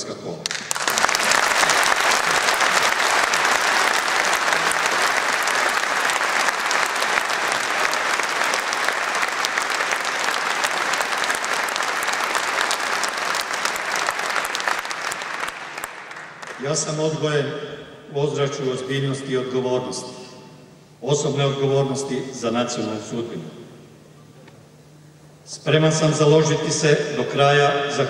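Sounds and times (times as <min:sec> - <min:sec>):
audience applauding: 0:00.4 - 0:17.0.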